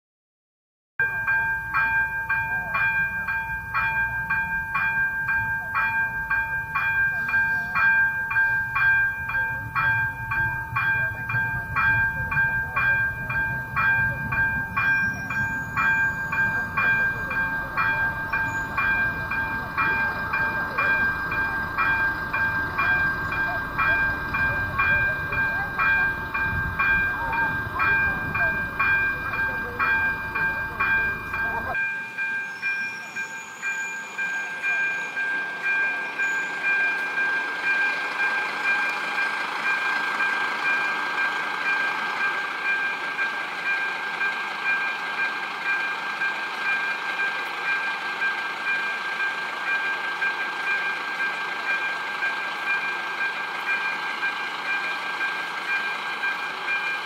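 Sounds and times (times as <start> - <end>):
level crossing bell ringing: 1.0 - 57.0
low rumble: 9.1 - 31.8.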